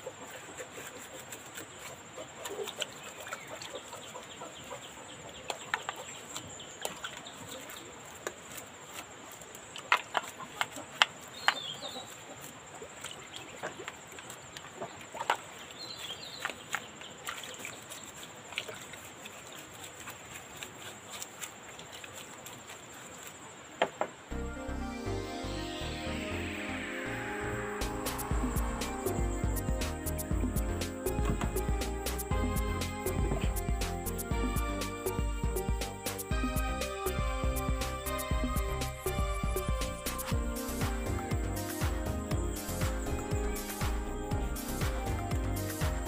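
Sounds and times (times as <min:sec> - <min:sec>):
chickens clucking: 0:00.0 - 0:08.1, 0:09.8 - 0:15.5, 0:26.5 - 0:46.0
brush scrubbing in liquid: 0:00.0 - 0:23.7, 0:26.8 - 0:46.0.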